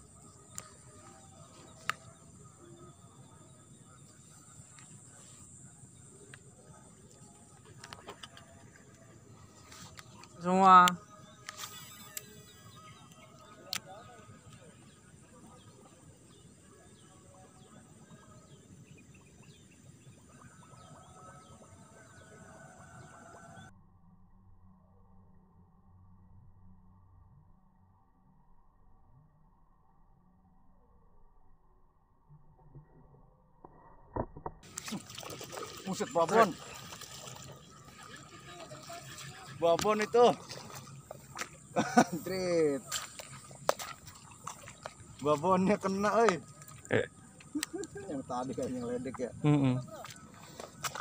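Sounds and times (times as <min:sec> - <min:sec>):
insects chirring: 0:00.0 - 0:23.6, 0:34.6 - 0:51.0.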